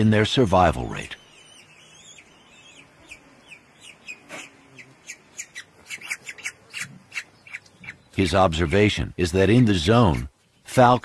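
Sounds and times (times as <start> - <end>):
falcon chick chirping: 1.0 - 8.9.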